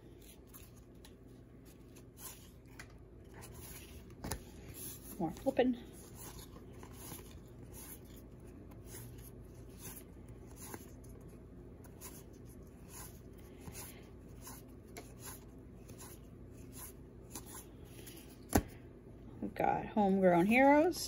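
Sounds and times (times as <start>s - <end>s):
cards being flipped: 0.1s - 5.1s.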